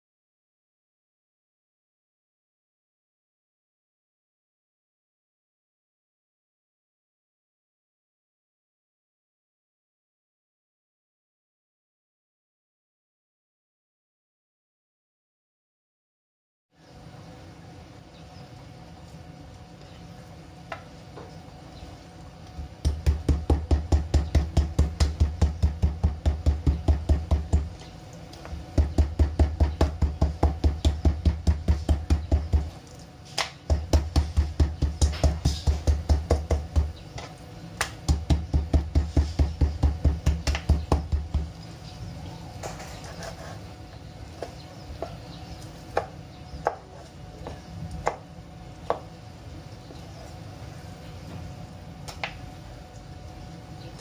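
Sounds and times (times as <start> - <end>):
cleaver chopping meat on board: 22.8 - 27.7, 28.8 - 32.8, 33.4 - 37.0, 37.8 - 41.5, 47.4 - 48.3.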